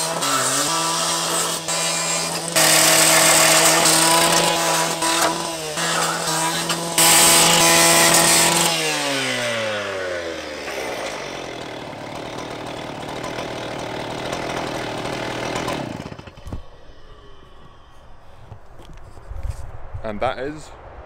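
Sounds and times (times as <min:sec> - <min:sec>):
cut-off saw disc cutting metal: 0:00.0 - 0:16.6
two-stroke engine idling: 0:10.4 - 0:16.4.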